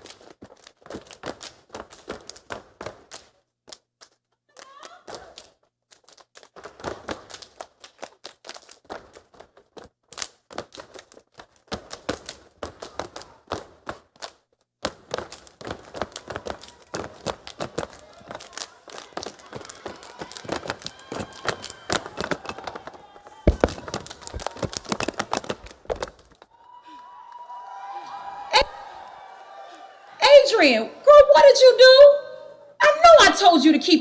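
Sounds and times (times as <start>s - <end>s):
hands clapping: 0.0s - 29.8s
feet stomping on a wooden stage: 8.5s - 26.5s.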